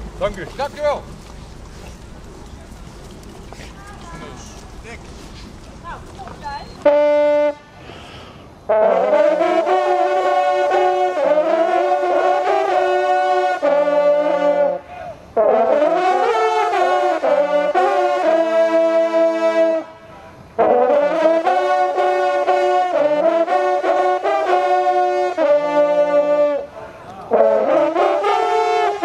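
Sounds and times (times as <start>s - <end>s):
hunting horns playing fanfare: 6.8s - 29.0s.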